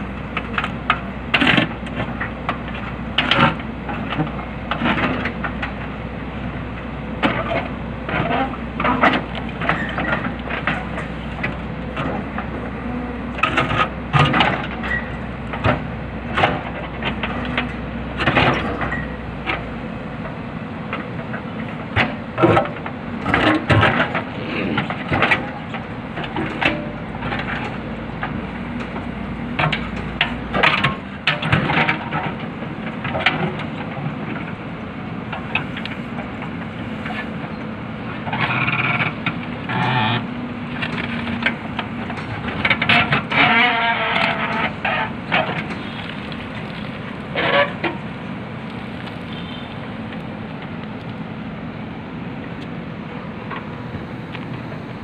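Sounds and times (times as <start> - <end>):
diesel engine running: 0.0 - 55.0
bucket clanking and scraping on rocks: 22.0 - 32.4, 40.9 - 48.0.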